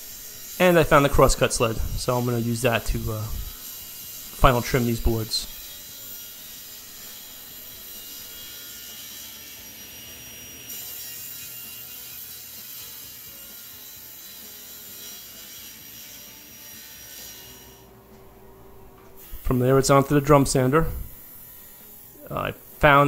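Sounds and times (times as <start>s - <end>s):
table saw cutting wood: 0.0s - 18.0s, 18.8s - 23.0s.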